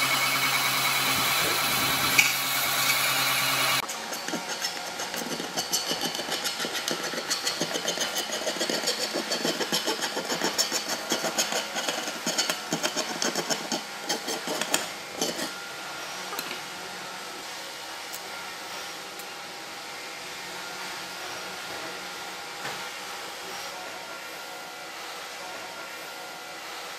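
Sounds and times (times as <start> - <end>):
blade scraping metal: 0.0 - 15.6.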